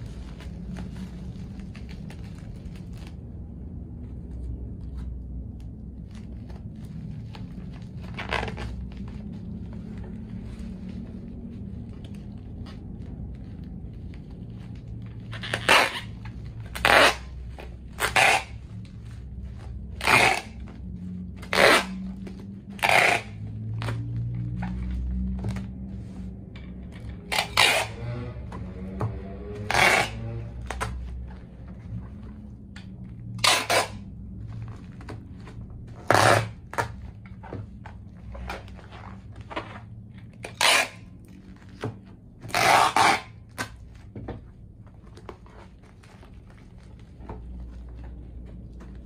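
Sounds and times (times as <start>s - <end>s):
packing tape ripping: 14.6s - 18.6s, 19.9s - 20.7s, 21.4s - 24.7s, 27.2s - 28.2s, 33.4s - 34.0s, 35.9s - 37.0s, 42.4s - 43.8s.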